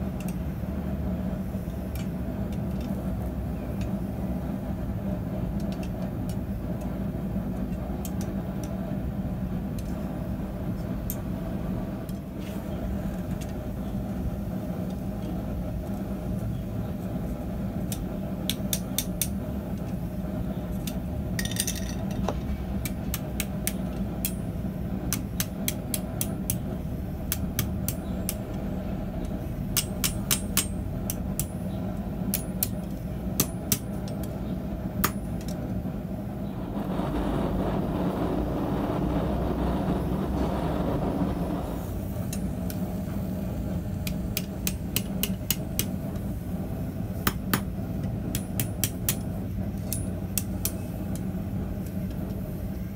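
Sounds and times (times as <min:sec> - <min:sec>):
steady low hum: 0:00.0 - 0:52.9
hammer striking steel on anvil: 0:22.8 - 0:24.5, 0:27.3 - 0:28.5, 0:29.7 - 0:31.6, 0:32.3 - 0:34.3, 0:35.0 - 0:35.5, 0:44.0 - 0:45.9, 0:48.3 - 0:51.2
rushing noise: 0:35.9 - 0:43.2.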